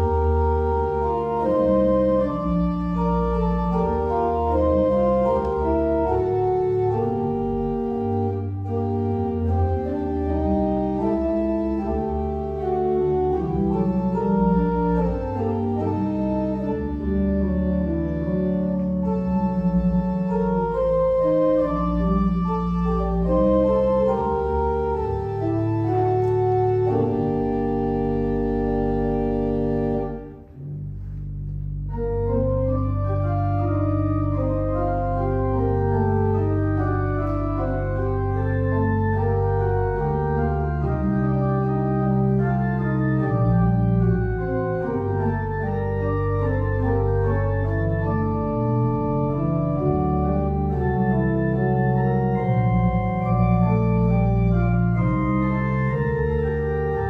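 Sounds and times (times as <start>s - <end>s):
organ music: 0.0s - 57.0s.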